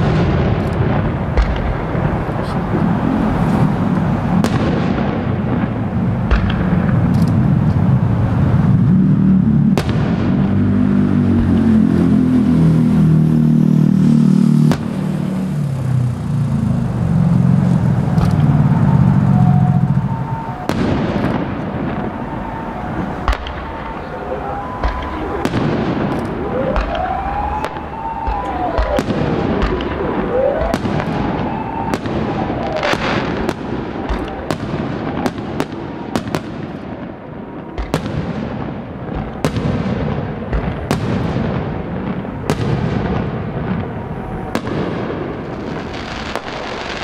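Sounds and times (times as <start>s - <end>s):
continuous low rumble: 0.0s - 47.0s.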